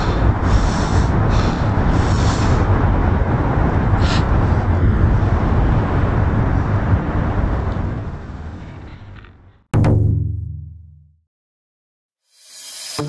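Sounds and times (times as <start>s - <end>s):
road traffic: 0.0s - 9.7s.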